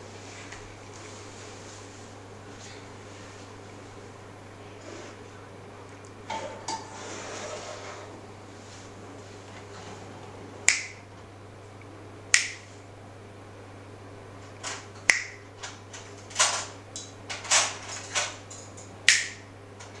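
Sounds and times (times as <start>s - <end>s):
finger snaps: 10.7s - 11.0s, 12.3s - 12.7s, 15.1s - 15.4s, 19.1s - 19.4s.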